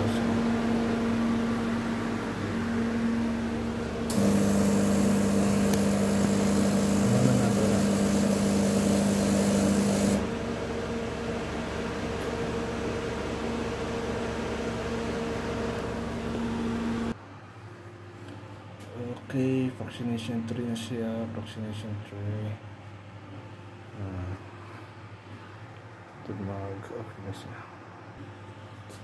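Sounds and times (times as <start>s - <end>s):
autoclave machine hum: 0.0s - 17.4s.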